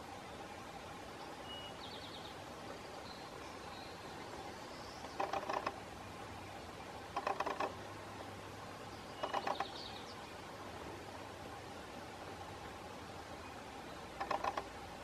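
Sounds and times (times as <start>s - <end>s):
woodpecker tapping on wood: 5.0s - 5.8s, 7.1s - 7.8s, 9.2s - 9.8s, 14.2s - 14.8s.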